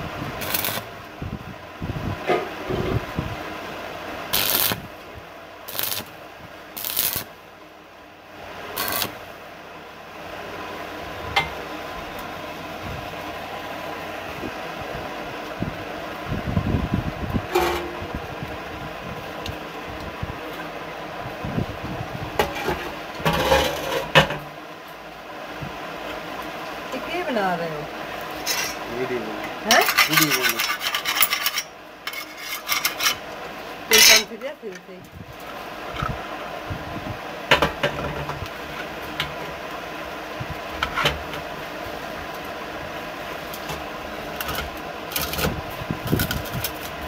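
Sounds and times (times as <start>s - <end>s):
arc welding bursts: 0.4s - 1.0s, 4.3s - 4.9s, 5.6s - 7.4s, 8.7s - 9.3s
steel parts clattering: 29.7s - 33.2s.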